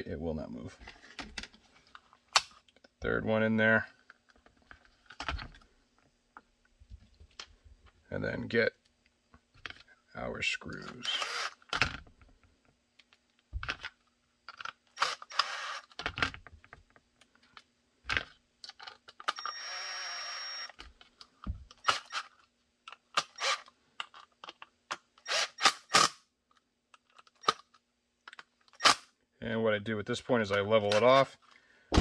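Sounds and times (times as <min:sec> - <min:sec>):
plastic parts clicking and knocking: 0:04.0 - 0:08.0, 0:11.6 - 0:14.9, 0:15.9 - 0:19.4, 0:20.7 - 0:25.3, 0:26.4 - 0:28.8
cordless screw gun running: 0:11.2 - 0:11.6, 0:15.0 - 0:15.9, 0:19.4 - 0:20.7, 0:23.3 - 0:23.7, 0:25.2 - 0:26.1.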